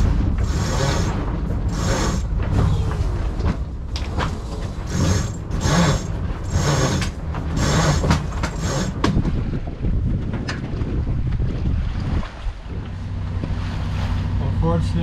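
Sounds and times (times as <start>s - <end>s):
winch ratcheting: 0.0s - 9.2s
wind rumble on microphone: 0.0s - 15.0s.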